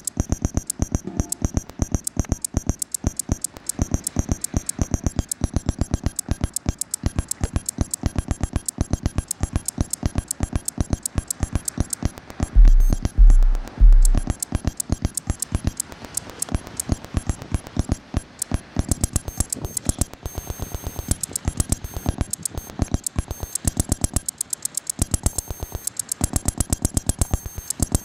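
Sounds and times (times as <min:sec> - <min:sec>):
high beeping tones: 0:00.0 - 0:28.0
synthesized clicks: 0:00.0 - 0:28.0
deep bass thump: 0:12.6 - 0:14.3.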